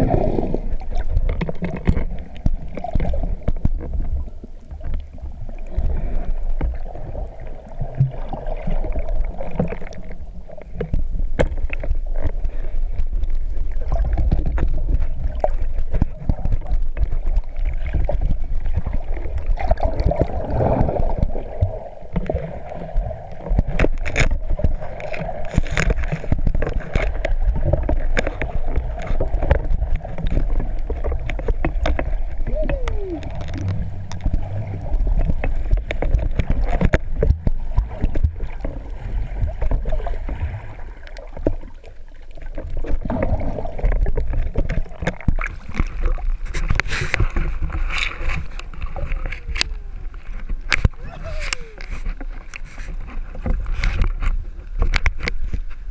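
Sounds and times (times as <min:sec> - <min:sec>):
water splashing: 0:00.0 - 0:55.6
muffled underwater noise: 0:28.2 - 0:39.8, 0:48.2 - 0:53.0.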